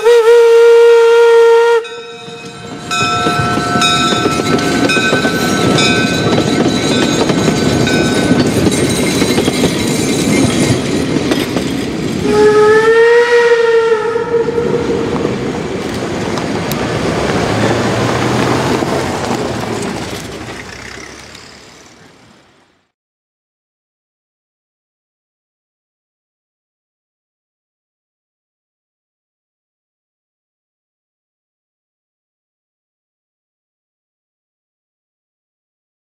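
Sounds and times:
steam whistle blast: 0:00.0 - 0:02.3, 0:12.2 - 0:15.2
train cars rumbling and clattering: 0:01.9 - 0:12.6, 0:14.4 - 0:22.7.

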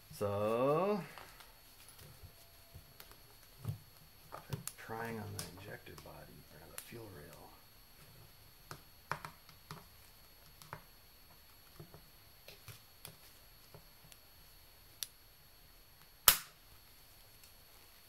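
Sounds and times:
sharp metal snap: 0:16.2 - 0:16.6.

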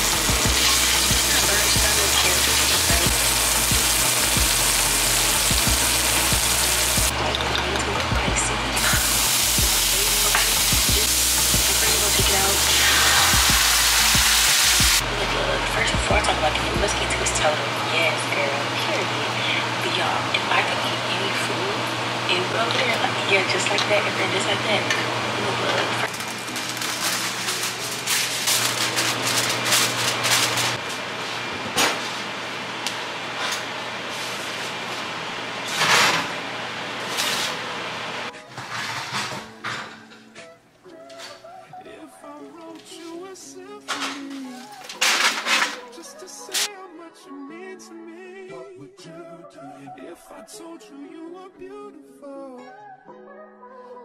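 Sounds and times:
garlic sizzling in a skillet: 0:00.0 - 0:07.1, 0:08.8 - 0:15.0
aluminium foil crinkling: 0:26.1 - 0:30.8, 0:43.9 - 0:46.7
dish scraping onto oven rack: 0:38.5 - 0:40.1.

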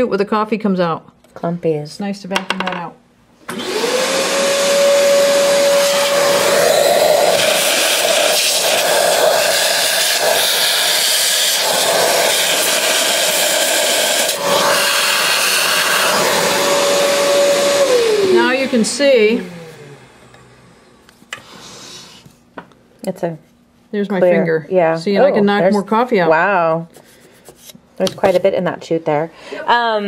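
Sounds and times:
vacuum cleaner running: 0:03.4 - 0:22.3.

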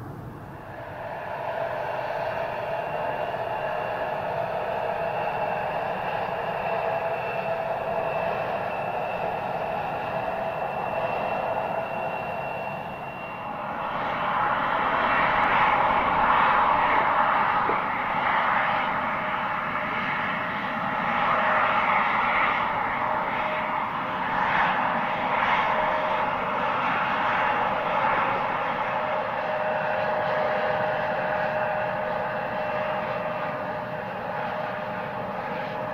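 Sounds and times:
jet engines running: 0:00.0 - 0:35.9.

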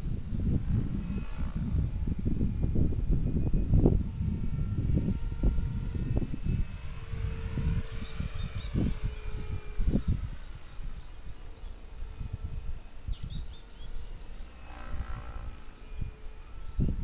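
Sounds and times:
distant model helicopter whine: 0:00.0 - 0:17.0
wind buffeting microphone: 0:00.0 - 0:17.0
bird chirps: 0:07.8 - 0:09.8, 0:10.4 - 0:11.9, 0:13.0 - 0:17.0.

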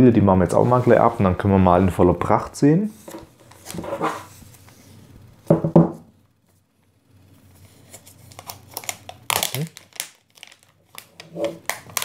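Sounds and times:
plastic film rustling: 0:07.2 - 0:12.0.

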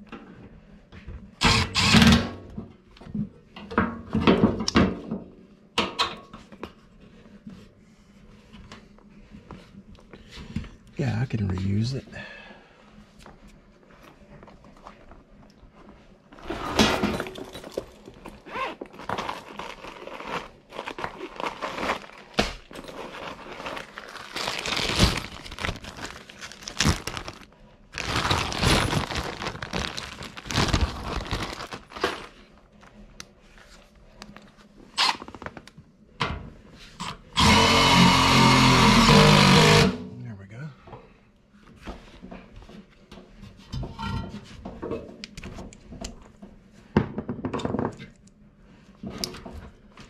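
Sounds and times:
parts clattering: 0:16.4 - 0:19.2
plastic bag crinkling: 0:17.3 - 0:32.7.

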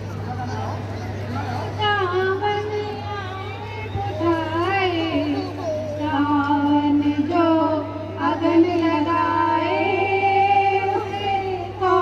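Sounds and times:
woman singing: 0:01.8 - 0:12.0.

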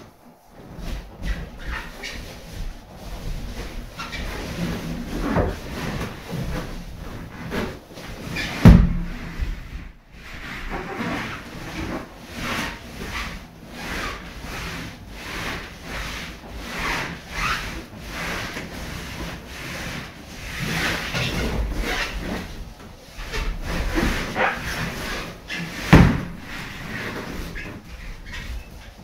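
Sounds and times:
balloons rubbing: 0:00.5 - 0:29.0.

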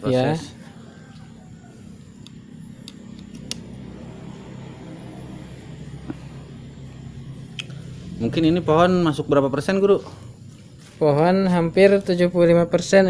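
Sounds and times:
steady low hum: 0:00.0 - 0:13.0
pruning shears clicking: 0:02.2 - 0:03.8.

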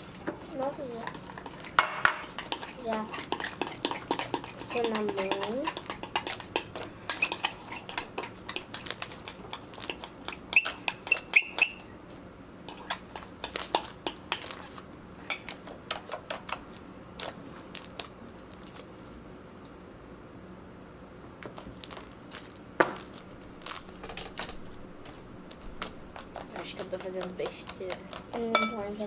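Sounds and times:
spoon stirring slime in a bowl: 0:00.8 - 0:11.9, 0:12.6 - 0:18.0, 0:26.2 - 0:29.0.

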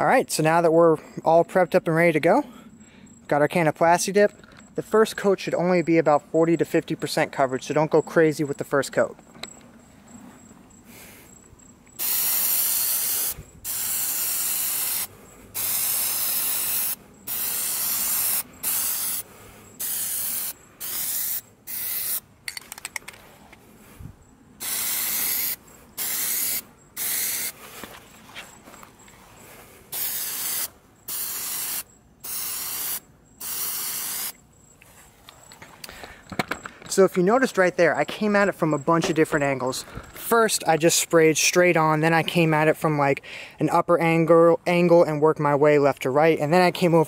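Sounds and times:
aerosol can spraying: 0:12.0 - 0:22.2, 0:24.6 - 0:27.6, 0:29.9 - 0:34.4.

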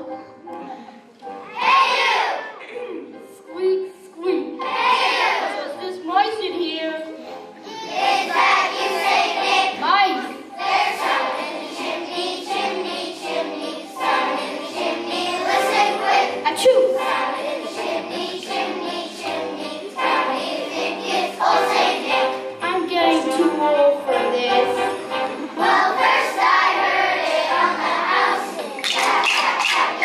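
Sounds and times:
children singing: 0:01.4 - 0:02.7, 0:04.6 - 0:05.6, 0:07.6 - 0:09.8, 0:10.5 - 0:22.5, 0:24.2 - 0:30.0.

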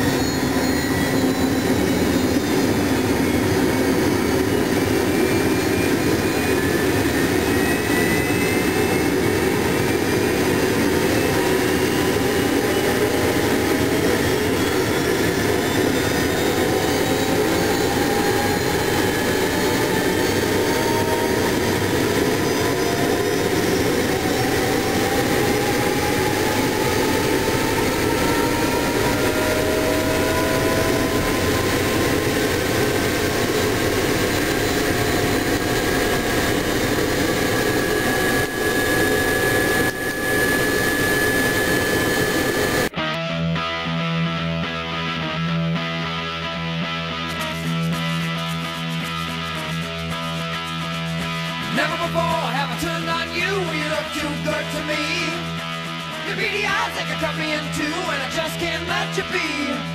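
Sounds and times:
helicopter turbine spooling up: 0:00.0 - 0:43.0.

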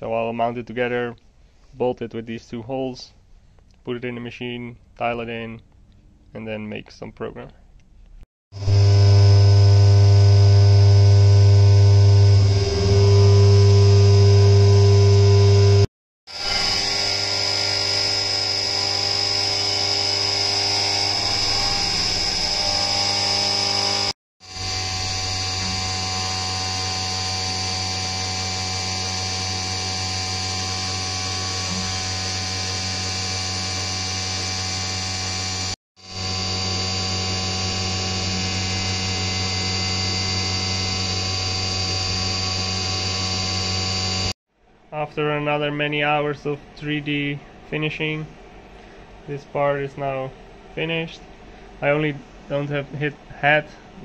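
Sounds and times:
milling spindle whine: 0:08.6 - 0:44.4
low machine hum: 0:16.4 - 0:44.2.

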